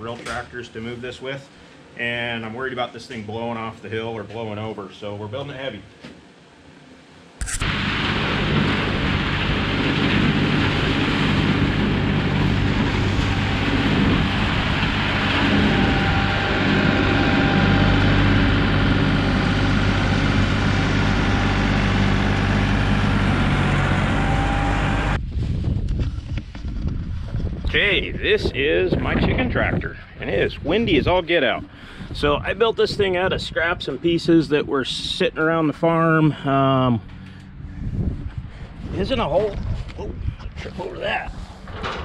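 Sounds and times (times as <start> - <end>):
tractor engine running: 7.4 - 25.2
wind on microphone: 25.1 - 34.2, 37.6 - 42.0.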